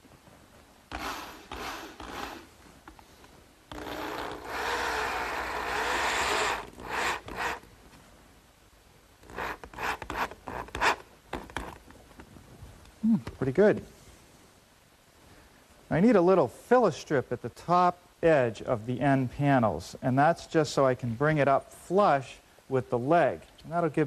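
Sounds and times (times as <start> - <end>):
power drill driving screw into wood: 0.9 - 3.0, 3.7 - 7.7, 9.2 - 11.8
scraping bursts: 3.7 - 7.7.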